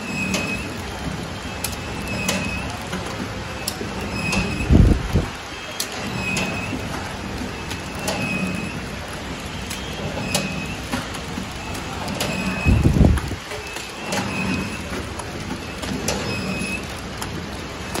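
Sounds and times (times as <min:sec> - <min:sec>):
packing machine humming: 0:00.0 - 0:18.0.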